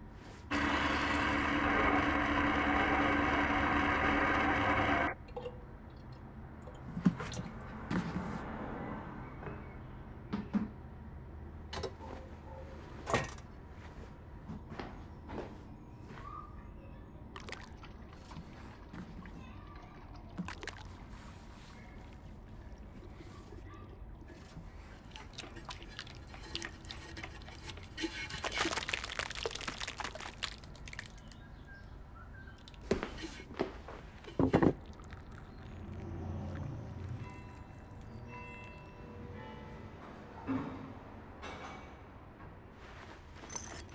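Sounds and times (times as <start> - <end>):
liquid clay splashing into bucket: 17.4 - 19.4, 20.0 - 22.3, 25.0 - 31.5.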